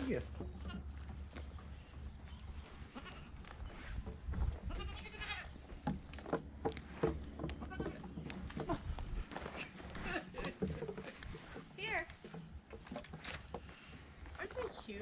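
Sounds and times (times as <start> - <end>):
goats bleating: 2.9 - 3.4, 4.6 - 5.6
hooves knocking on wooden plank: 5.5 - 9.3, 10.4 - 14.1.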